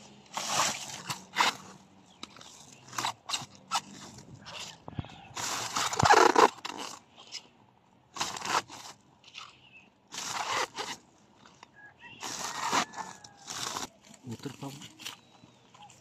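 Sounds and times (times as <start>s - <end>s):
plastic sack rustling: 0.1s - 4.8s.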